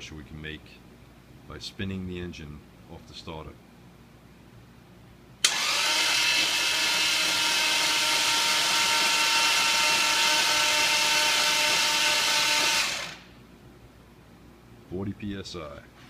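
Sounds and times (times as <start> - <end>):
starter motor cranking engine: 5.4 - 13.3.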